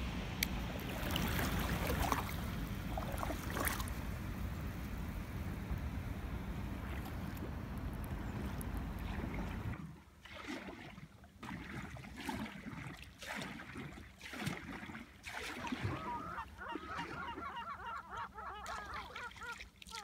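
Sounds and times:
canoe paddle strokes in water: 0:00.0 - 0:20.0
flock of birds calling: 0:15.9 - 0:19.6.

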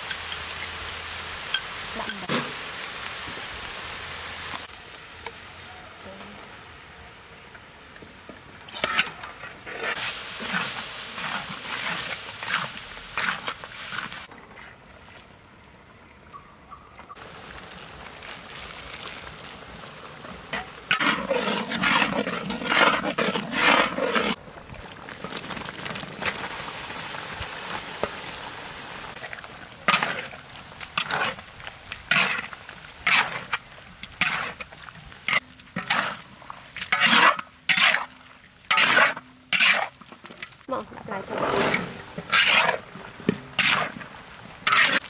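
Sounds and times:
wok sizzling: 0:00.0 - 0:14.3, 0:17.2 - 0:45.0
metal ladle scraping a wok: 0:20.5 - 0:24.4, 0:29.9 - 0:30.4, 0:31.0 - 0:31.4, 0:32.1 - 0:33.6, 0:34.2 - 0:34.6, 0:35.3 - 0:36.2, 0:36.8 - 0:40.4, 0:41.2 - 0:42.9, 0:43.5 - 0:44.0, 0:44.6 - 0:45.0.

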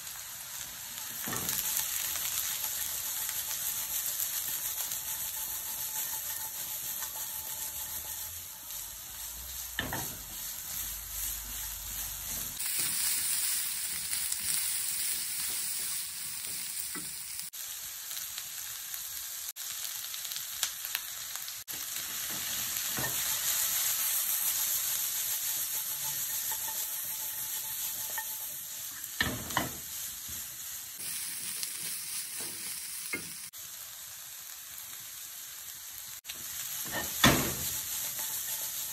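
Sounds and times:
stir-fry sizzling in a wok: 0:00.0 - 0:38.9
spatula knocking and scraping pan: 0:01.0 - 0:08.5, 0:09.7 - 0:10.3, 0:25.2 - 0:29.8, 0:36.8 - 0:38.9.

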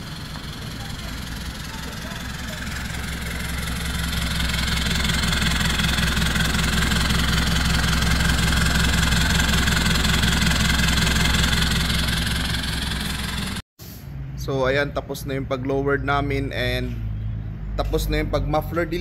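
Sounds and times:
diesel engine idling: 0:00.0 - 0:13.6.

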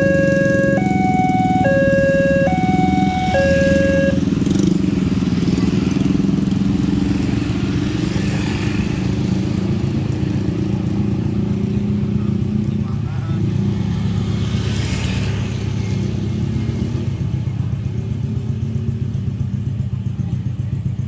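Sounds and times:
level crossing alarm two tones: 0:00.0 - 0:04.3
motorcycle and car engines: 0:00.0 - 0:21.0.

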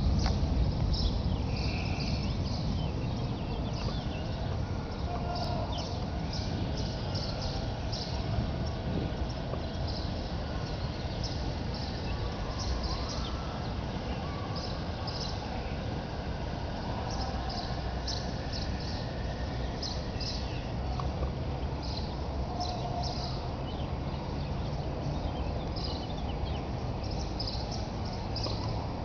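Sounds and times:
steady low rumble: 0:00.0 - 0:22.5
birds chirping: 0:00.0 - 0:29.0.

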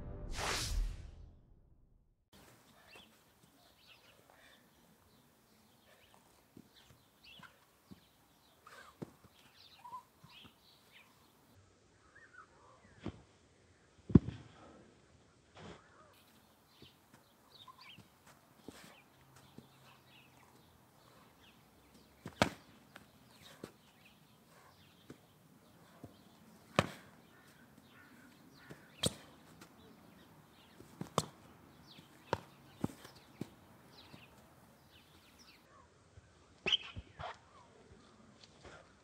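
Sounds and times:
faint bird chirps: 0:02.7 - 0:13.1, 0:15.8 - 0:18.1
foam sabres slapping: 0:22.2 - 0:23.6, 0:26.7 - 0:27.2, 0:28.7 - 0:29.4, 0:31.0 - 0:31.4, 0:32.2 - 0:33.5.

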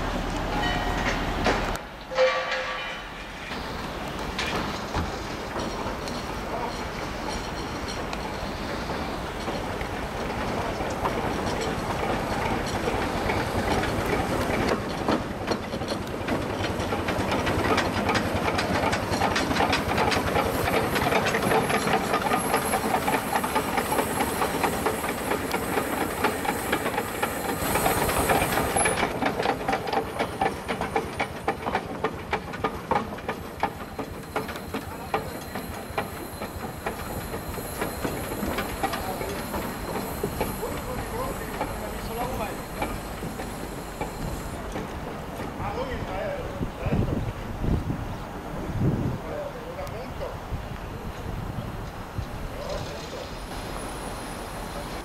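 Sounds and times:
steam locomotive hissing: 0:00.0 - 0:55.0
clanking and clicking: 0:00.6 - 0:45.6.

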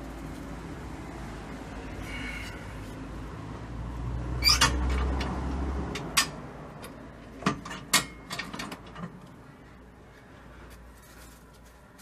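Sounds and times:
sharp metallic clicks and knocks: 0:04.4 - 0:09.4.

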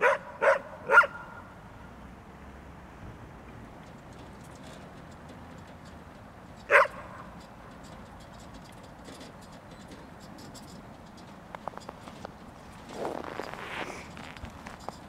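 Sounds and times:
dog barking: 0:00.0 - 0:01.4, 0:06.7 - 0:07.2.

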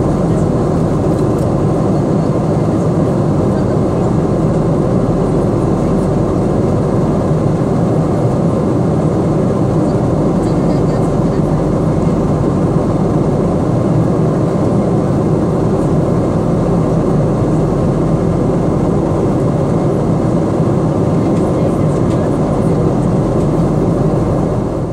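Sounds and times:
jet engine cabin roar: 0:00.0 - 0:24.9.

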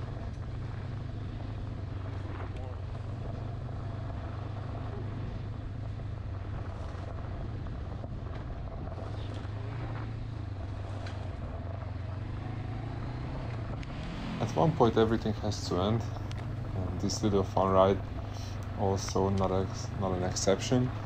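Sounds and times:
motorcycle engine running: 0:00.0 - 0:21.0
faint ticks: 0:16.1 - 0:16.7.

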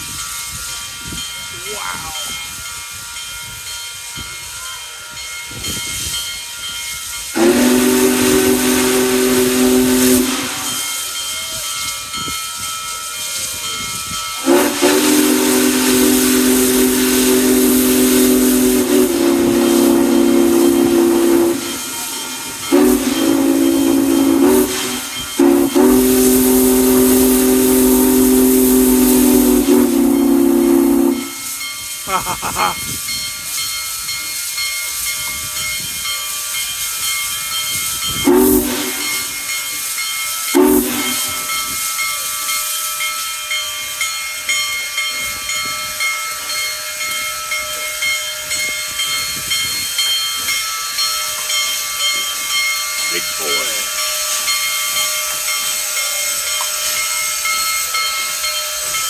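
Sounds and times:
hiss of steam: 0:00.0 - 0:59.0
steam locomotive whistle: 0:07.3 - 0:11.5, 0:14.4 - 0:32.1, 0:38.0 - 0:39.6, 0:40.5 - 0:42.3.

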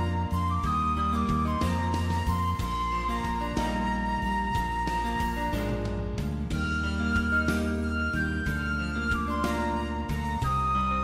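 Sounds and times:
light steady beat: 0:00.0 - 0:11.0
soft flute-like melody: 0:00.0 - 0:11.0.

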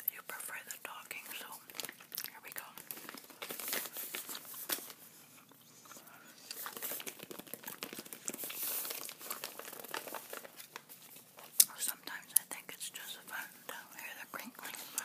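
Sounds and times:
envelope crinkling and rustling: 0:00.6 - 0:05.2, 0:05.8 - 0:12.2.

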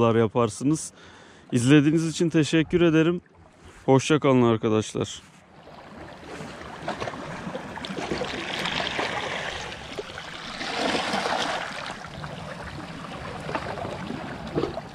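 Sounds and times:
waves washing over rocks: 0:06.3 - 0:14.9.

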